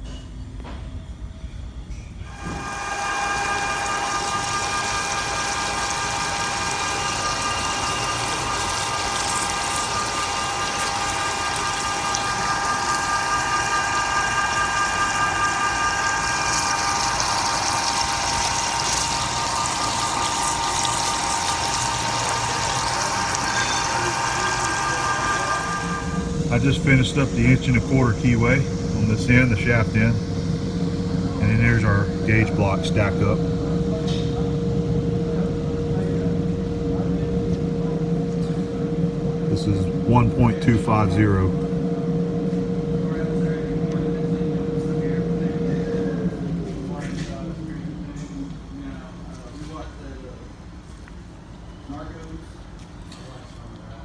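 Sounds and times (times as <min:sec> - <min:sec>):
coolant splashing hiss: 0:02.3 - 0:30.2
end mill cutting metal whine: 0:02.3 - 0:49.4.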